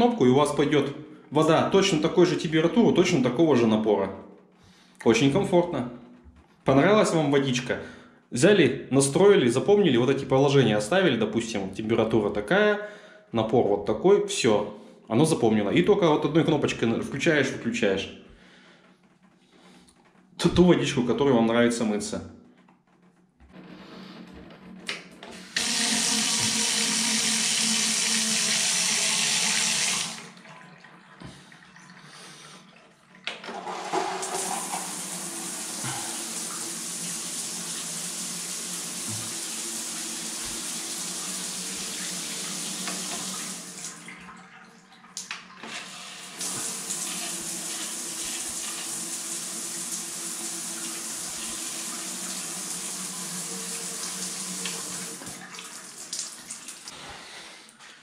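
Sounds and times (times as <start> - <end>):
shower water running: 25.3 - 56.9
shower water falling into bathtub: 25.6 - 31.5, 33.1 - 45.6, 46.3 - 56.9.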